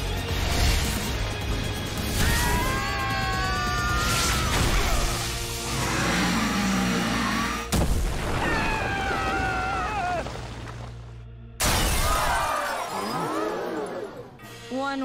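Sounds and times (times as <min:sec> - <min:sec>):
background score music: 0:00.0 - 0:15.0.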